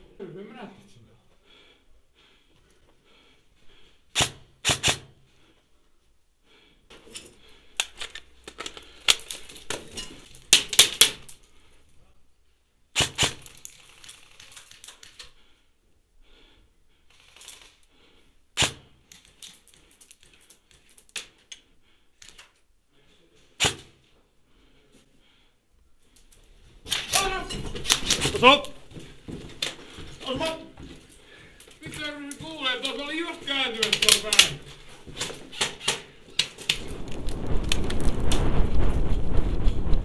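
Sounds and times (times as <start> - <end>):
electric airsoft rifle firing: 4.1 - 5.1, 13.0 - 14.6, 23.6 - 23.9.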